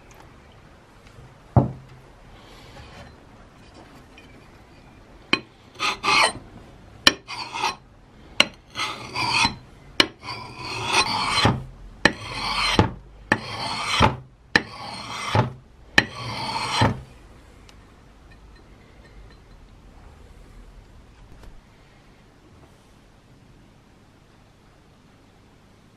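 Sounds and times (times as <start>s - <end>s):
blade scraping sharpening stone: 5.4s - 6.4s, 7.1s - 7.8s, 8.4s - 11.5s, 12.1s - 15.4s, 16.0s - 16.9s.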